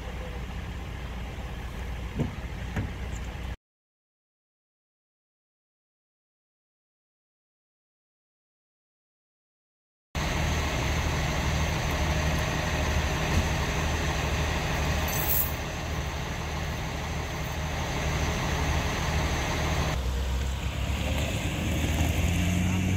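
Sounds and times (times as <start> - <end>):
vehicle engine idling: 0.0 - 3.6, 10.2 - 22.0.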